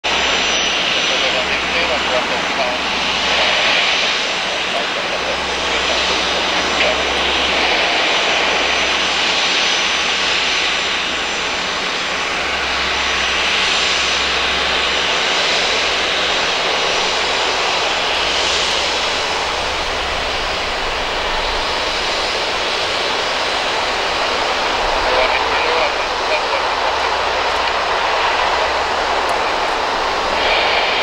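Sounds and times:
jet engines whining: 0.0 - 31.0.

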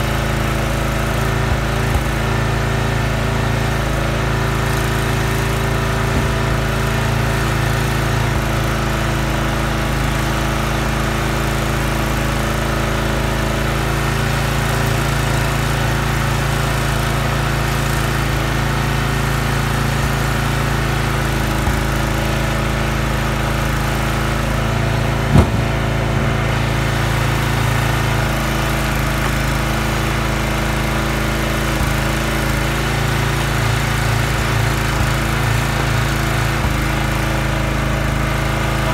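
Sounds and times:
log splitter engine running: 0.0 - 38.9
sharp knock: 25.3 - 25.8.

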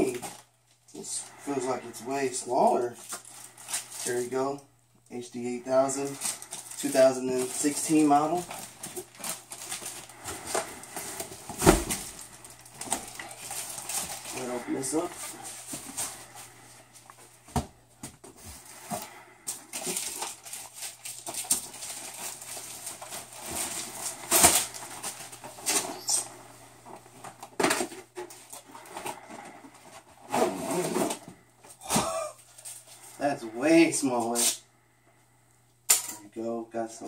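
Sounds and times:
packing rustling: 5.8 - 31.3.

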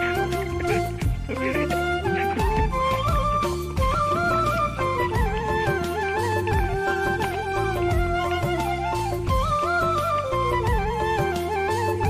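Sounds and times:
flute-like melody: 0.0 - 12.0.

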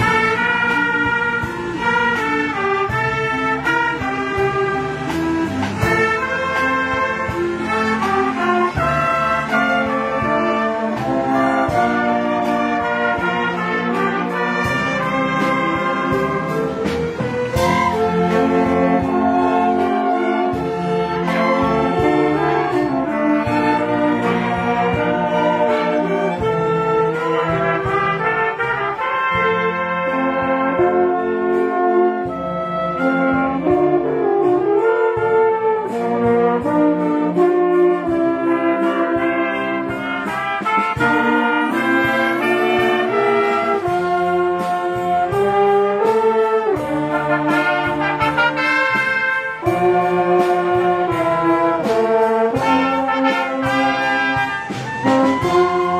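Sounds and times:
strings: 0.0 - 34.6
brass instruments: 0.0 - 55.9.

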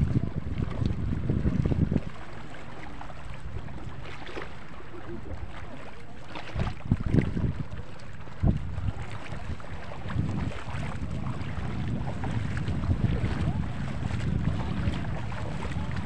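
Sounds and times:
low wind rumble: 0.0 - 4.2, 6.4 - 16.0
wind buffeting microphone: 0.0 - 4.4, 6.3 - 16.0.

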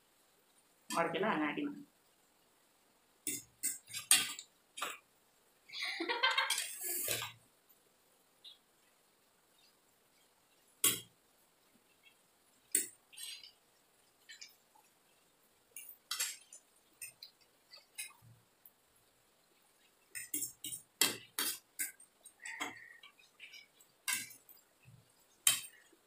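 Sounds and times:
cutlery clinking on plates: 3.3 - 5.0, 20.2 - 24.5.

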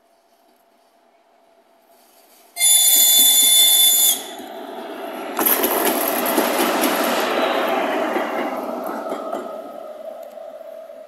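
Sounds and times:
shrill locomotive whistle: 2.6 - 4.5
train wheels rumbling and clattering: 2.7 - 11.0.

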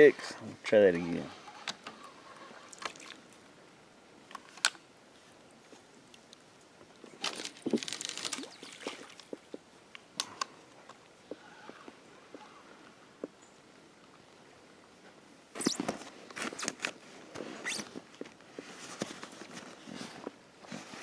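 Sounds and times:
splashing in river: 2.6 - 3.2, 7.2 - 9.5.

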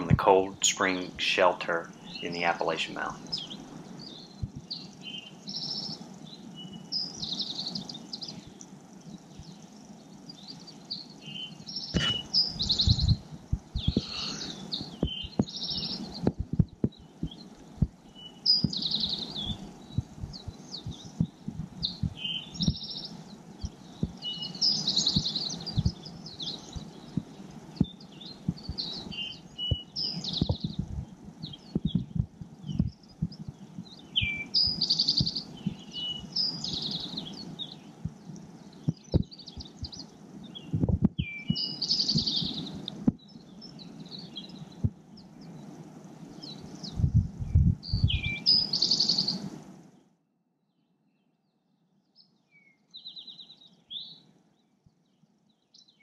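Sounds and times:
songbirds chirping and trilling: 0.0 - 50.1, 50.7 - 56.0
thumps on microphone: 4.4 - 4.6, 12.8 - 13.2, 13.8 - 14.1, 14.8 - 15.6, 16.2 - 17.9, 25.2 - 26.0, 30.4 - 33.6, 35.2 - 35.8, 38.9 - 40.0, 40.7 - 41.2.

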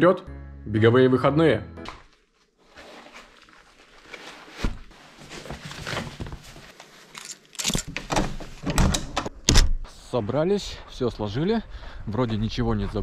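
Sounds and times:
clothes rustling into backpack: 2.0 - 7.7.

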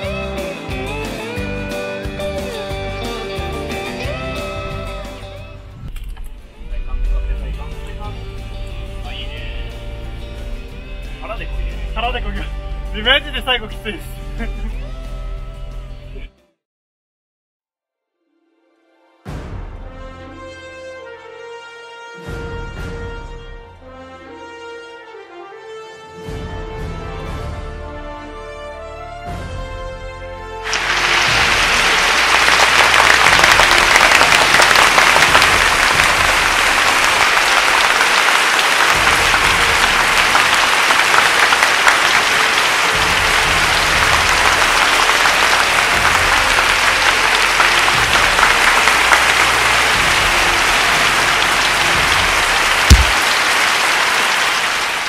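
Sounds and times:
crowd applauding: 30.6 - 55.0.

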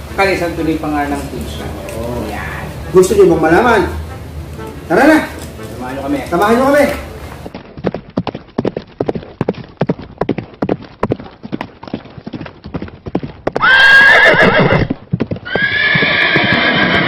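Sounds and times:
horse hooves clip-clopping: 4.1 - 17.0
horse whinnying: 13.6 - 17.0.

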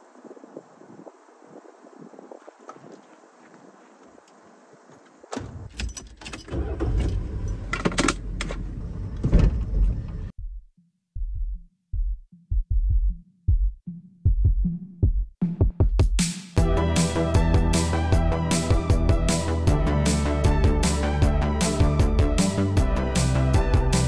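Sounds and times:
van engine starting and running: 5.3 - 10.3, 16.6 - 24.0
electronic music bass pulses: 16.6 - 24.0.

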